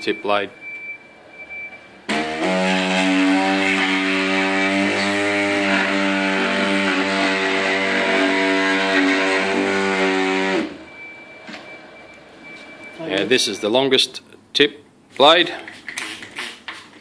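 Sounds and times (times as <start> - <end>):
oscillating cutter buzzing: 2.1 - 10.8.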